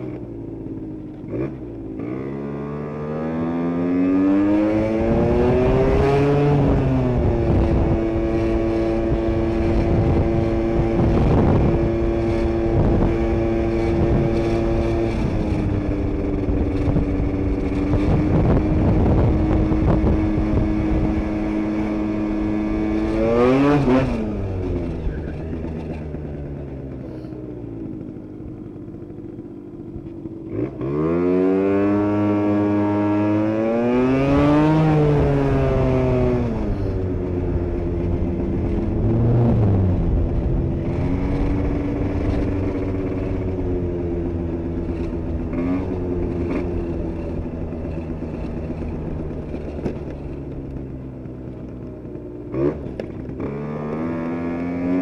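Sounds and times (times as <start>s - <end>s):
two-stroke scooter engine revving: 0.0s - 55.0s.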